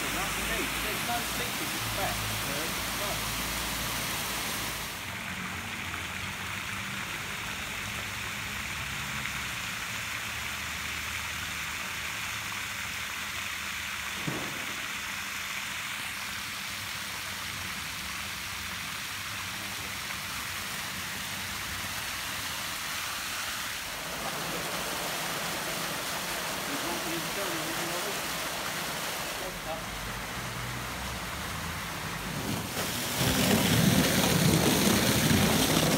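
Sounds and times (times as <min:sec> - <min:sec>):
hose water spraying on paving: 0:00.0 - 0:35.9.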